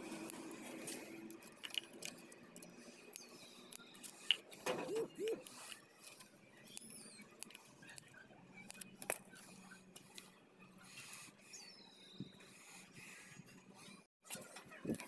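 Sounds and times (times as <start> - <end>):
plastic strips clicking and crinkling: 0.2 - 4.8.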